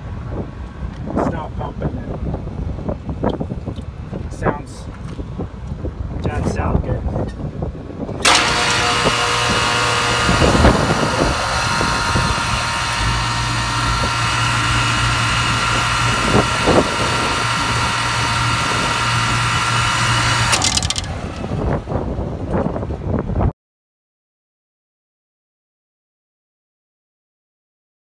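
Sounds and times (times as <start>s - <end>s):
compressor hum and whine: 6.5s - 23.3s
compressor knocks: 8.2s - 21.5s.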